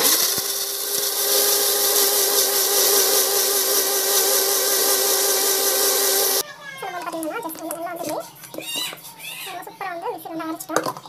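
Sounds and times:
mixer grinder whirring: 0:00.0 - 0:06.4.

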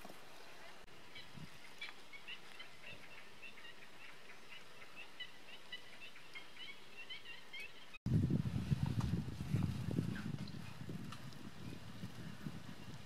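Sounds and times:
faint outdoor hiss: 0:00.0 - 0:09.3
small birds chirping: 0:00.3 - 0:08.0.

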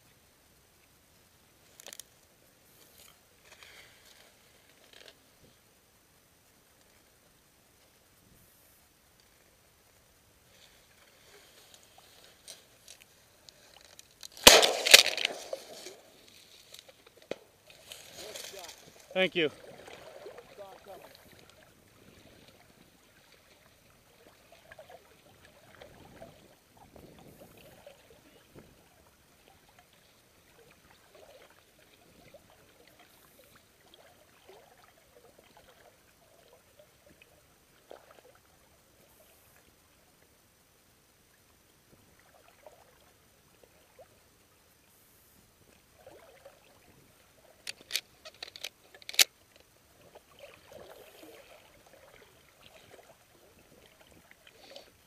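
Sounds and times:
water lapping against boat: 0:17.8 - 0:38.5, 0:45.9 - 0:47.6, 0:49.9 - 0:55.0.

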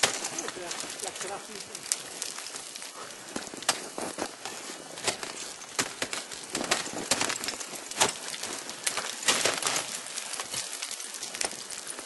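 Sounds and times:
crampons crunching into ice: 0:00.0 - 0:12.0.

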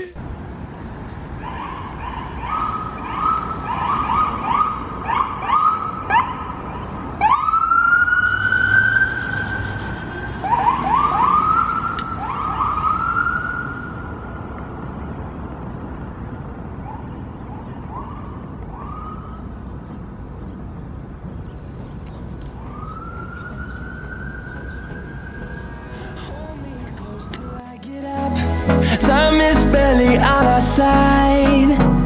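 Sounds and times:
low traffic noise: 0:00.0 - 0:32.0
ambulance siren: 0:01.4 - 0:14.4, 0:17.6 - 0:19.6, 0:22.6 - 0:27.8.

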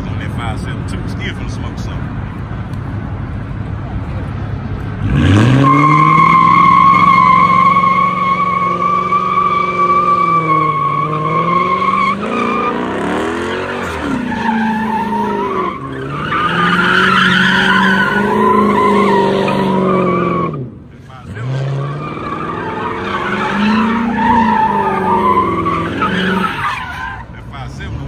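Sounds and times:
car engine revving: 0:00.0 - 0:28.0
tyres squealing: 0:05.5 - 0:27.4.

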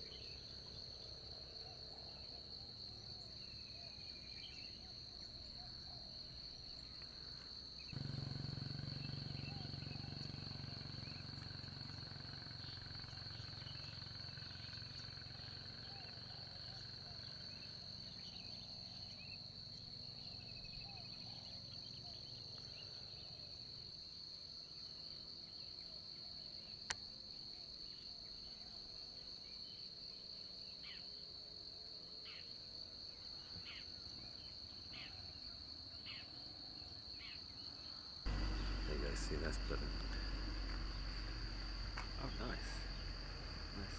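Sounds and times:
high-pitched insect drone: 0:06.2 - 0:21.9, 0:38.3 - 0:43.9
low rumble: 0:38.3 - 0:43.9.

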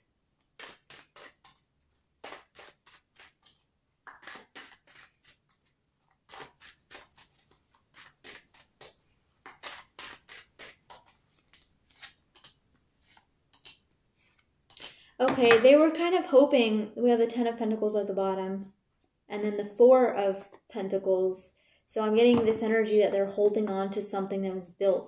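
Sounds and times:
cards shuffling: 0:06.3 - 0:15.0.

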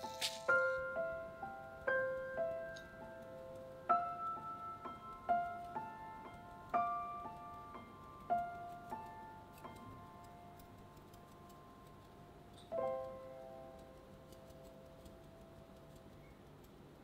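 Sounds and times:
piano chord ringing: 0:00.0 - 0:10.6.

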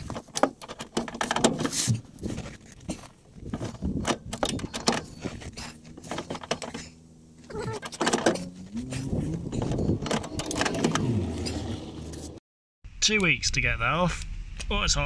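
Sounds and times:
low wavering creak: 0:05.0 - 0:12.4.

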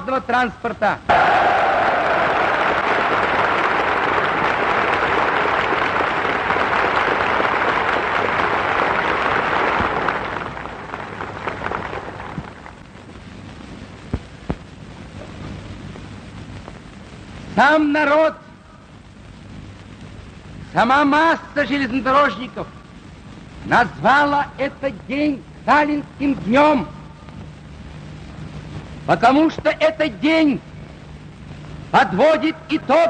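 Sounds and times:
faint background hiss: 0:00.0 - 0:33.0
crowd applauding: 0:01.1 - 0:12.8.

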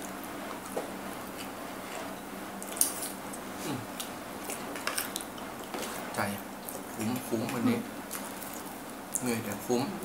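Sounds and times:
chewing: 0:00.0 - 0:06.0.

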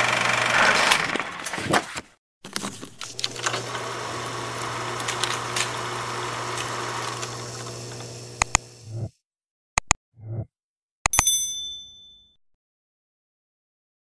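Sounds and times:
film projector whirring hum: 0:00.0 - 0:01.2, 0:03.0 - 0:08.8
sharp clicks: 0:08.4 - 0:08.6, 0:09.8 - 0:10.0.

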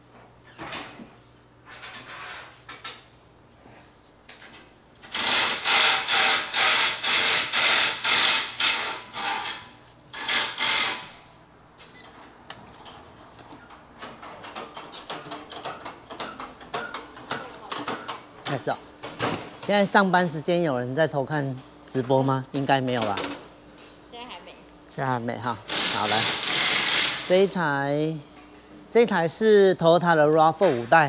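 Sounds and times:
power tool short bursts: 0:05.1 - 0:09.4, 0:25.7 - 0:27.3.

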